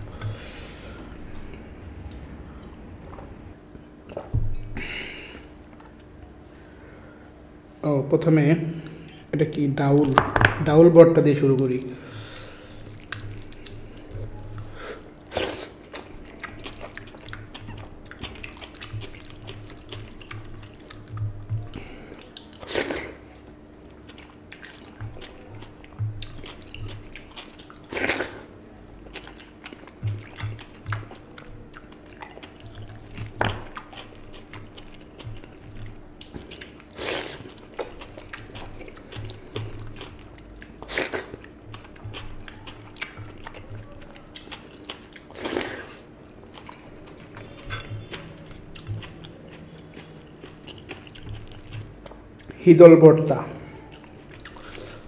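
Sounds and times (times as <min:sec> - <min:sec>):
chewing and wet mouth sounds: 0:11.4 - 0:55.0.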